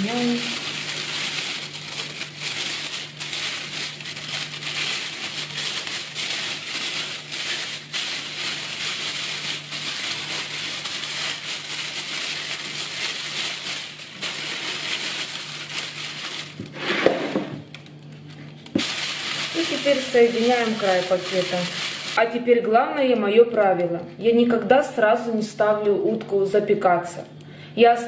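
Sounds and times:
plastic bag crinkling: 0.0 - 22.4.

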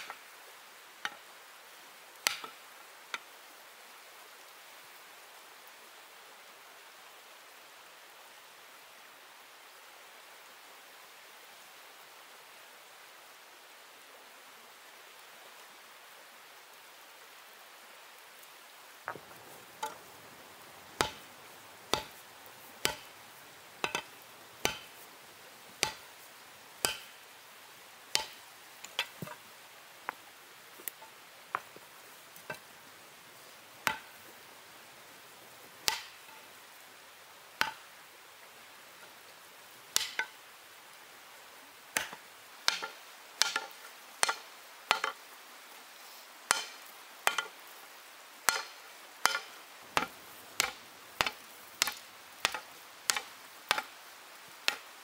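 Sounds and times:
steady hiss: 0.0 - 55.0
stone hammer striking hot iron: 2.2 - 2.5, 19.8 - 20.1, 21.0 - 22.2, 22.8 - 23.1, 23.8 - 25.0, 25.8 - 26.1, 26.8 - 27.2, 28.1 - 29.4, 33.9 - 34.1, 35.8 - 36.3, 40.0 - 40.3, 42.0 - 45.2, 46.5 - 47.5, 48.5 - 53.9, 54.6 - 54.8.

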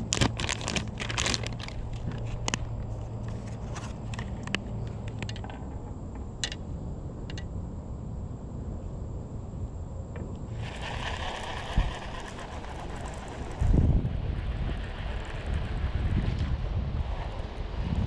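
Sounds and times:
plastic packaging crinkling: 0.0 - 2.6
low steady background noise: 0.0 - 18.0.

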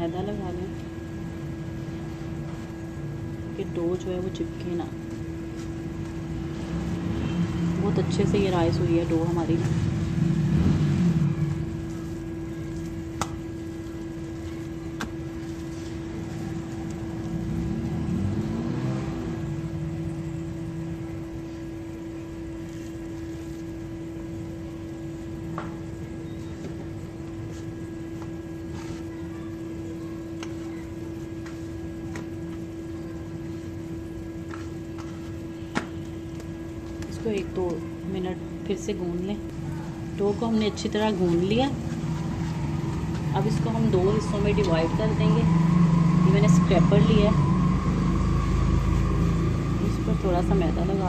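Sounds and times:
electrical hum: 0.0 - 51.0
hands kneading dough: 26.3 - 37.8.

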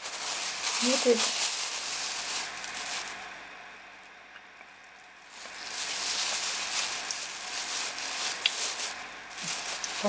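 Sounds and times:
soft rustling handling noise: 0.0 - 3.4, 5.2 - 10.0.

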